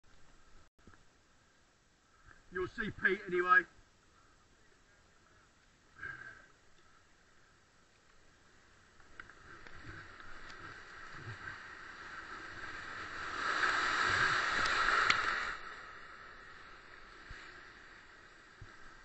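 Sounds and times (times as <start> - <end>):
white water rushing: 9.4 - 19.0.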